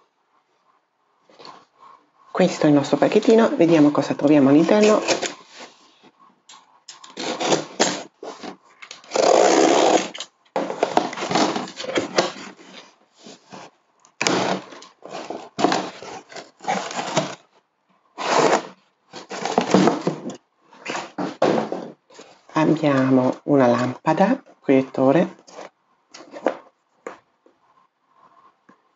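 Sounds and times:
box cutter slitting packing tape: 4.8 - 5.4, 7.0 - 12.7, 14.2 - 17.4, 18.2 - 20.0
cardboard flaps folding open: 7.1 - 13.6, 14.2 - 17.4
crumpled paper rustling: 10.6 - 13.7, 14.3 - 17.5.

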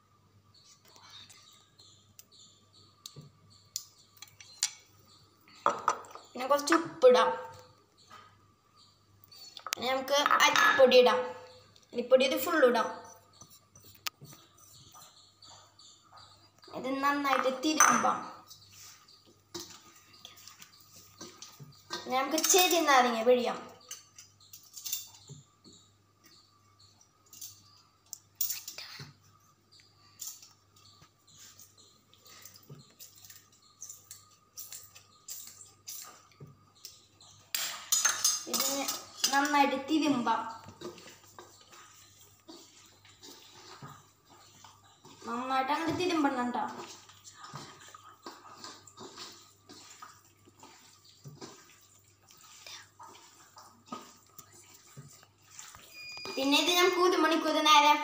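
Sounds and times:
hands squishing food in a bowl: 29.8 - 57.7.

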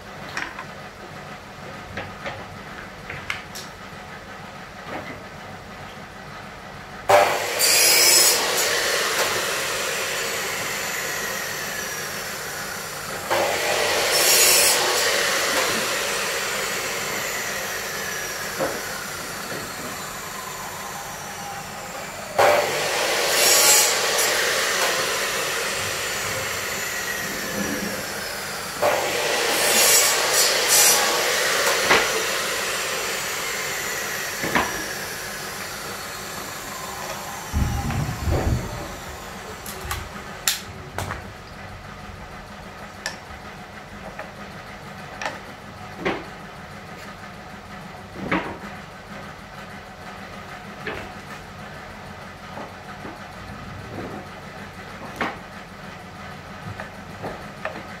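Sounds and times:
power tool whining down: 7.1 - 40.7.

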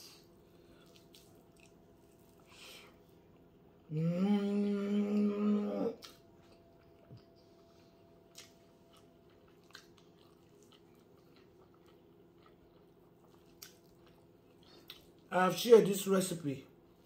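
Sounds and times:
quiet chewing: 0.0 - 3.9, 5.9 - 15.3
woman humming: 3.9 - 6.0.

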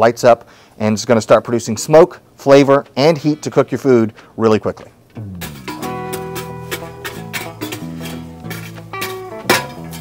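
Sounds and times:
instrumental music: 5.1 - 10.0.

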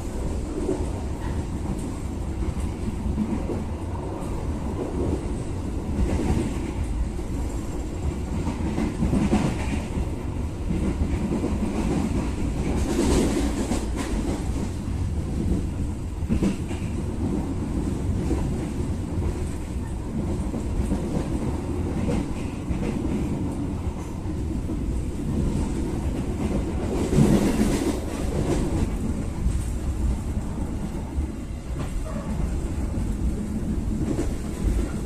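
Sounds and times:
train wheels rumbling on rails: 0.0 - 35.0.

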